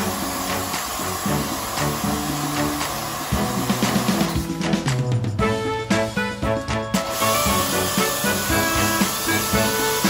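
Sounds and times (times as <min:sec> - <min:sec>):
pressure washer spraying water: 0:00.0 - 0:04.5, 0:07.0 - 0:10.0
background music with steady beat: 0:00.0 - 0:10.0.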